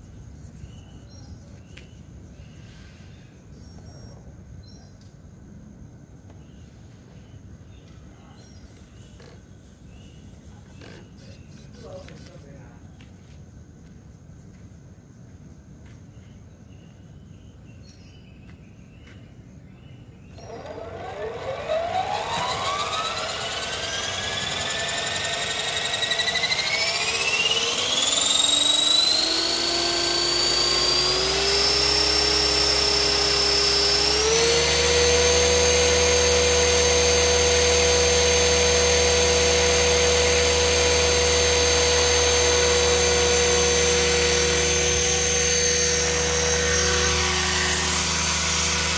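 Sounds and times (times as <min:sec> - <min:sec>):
electric helicopter motor whine: 0:20.2 - 0:48.9.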